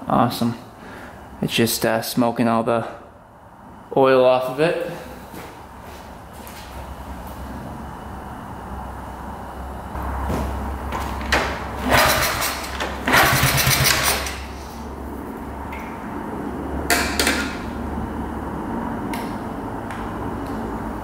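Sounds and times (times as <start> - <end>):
small motorcycle engine running: 11.8 - 14.4.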